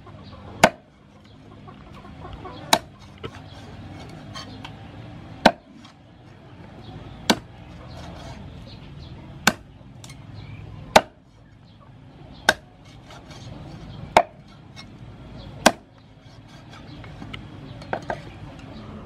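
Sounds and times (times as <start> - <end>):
cleaver chopping on wooden block: 0.6 - 0.9, 2.7 - 3.4, 5.4 - 6.0, 7.2 - 7.6, 9.4 - 10.2, 10.9 - 11.2, 12.4 - 13.4, 14.1 - 14.5, 15.6 - 16.0.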